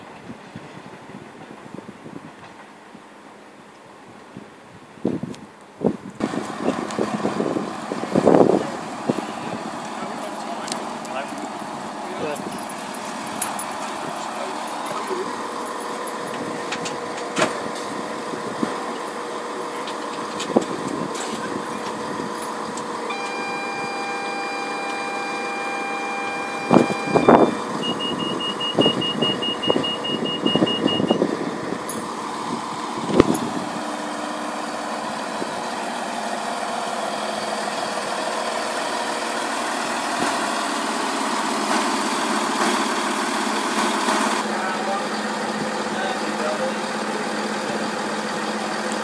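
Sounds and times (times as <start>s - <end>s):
train hum: 0.0s - 49.0s
multi-pitched door warning tone: 22.9s - 31.3s
rapid beeping: 23.1s - 31.2s.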